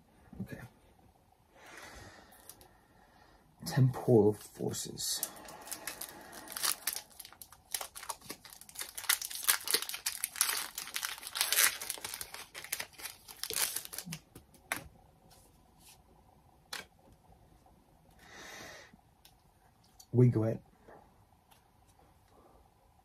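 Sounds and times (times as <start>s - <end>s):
foil wrapper crinkling: 5.2s - 14.8s.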